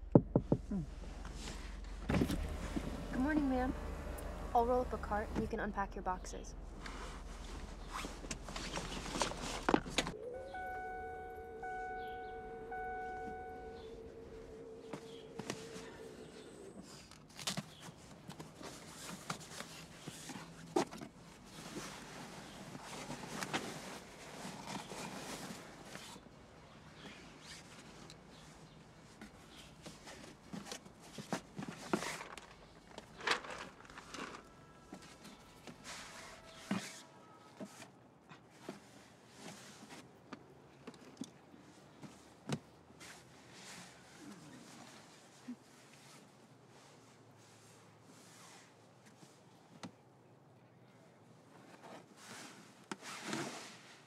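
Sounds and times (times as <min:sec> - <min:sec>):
soft music with held low note: 0:01.2 - 0:16.5
rustling in a car seat: 0:06.7 - 0:26.2
bell-like tone: 0:10.1 - 0:16.6
rummaging through a cardboard box: 0:29.9 - 0:37.0.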